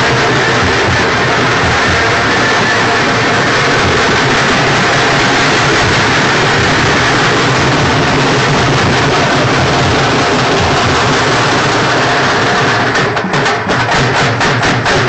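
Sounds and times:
dhol drums beaten fast: 0:00.0 - 0:15.0.

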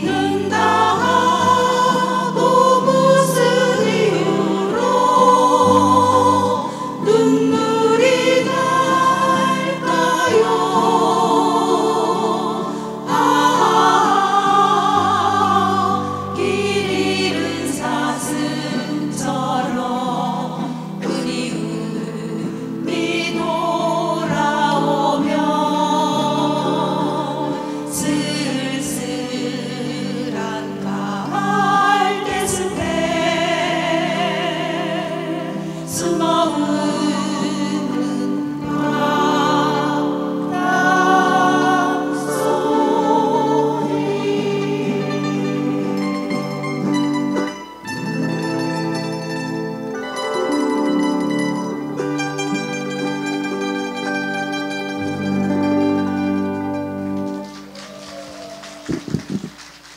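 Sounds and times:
women singing together: 0:00.0 - 0:46.1
mandolin ensemble: 0:00.0 - 0:57.7.

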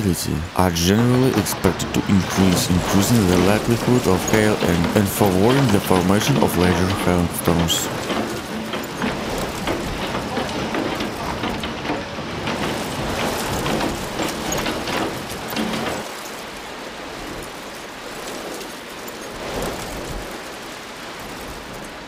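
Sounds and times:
rain hissing on wet road: 0:00.0 - 0:12.0
hail pelting cars: 0:00.0 - 0:17.2.

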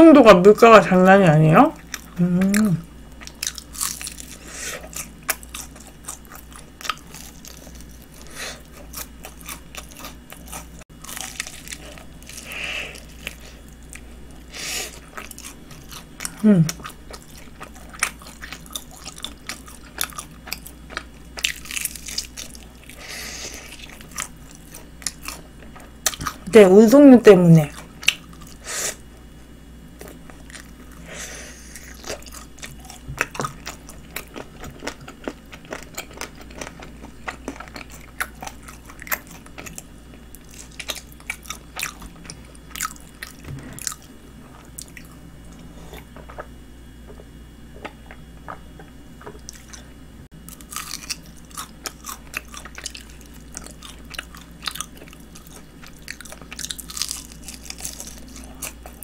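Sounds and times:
biting and chewing fried chicken: 0:01.8 - 0:26.5, 0:27.7 - 0:29.3, 0:29.9 - 0:46.6, 0:47.4 - 0:59.0
crunching of crispy coating: 0:01.8 - 0:26.5, 0:31.7 - 0:45.2, 0:50.4 - 0:59.0.

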